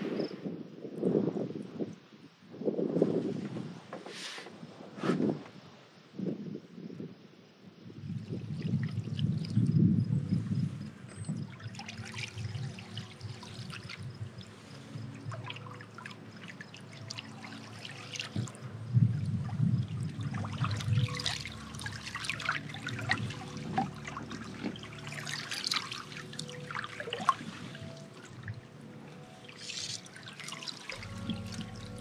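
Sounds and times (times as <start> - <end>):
light paddle splashes: 11.2 - 18.7, 19.4 - 32.0
water dripping off paddle: 11.5 - 18.6, 20.0 - 28.6, 29.4 - 32.0.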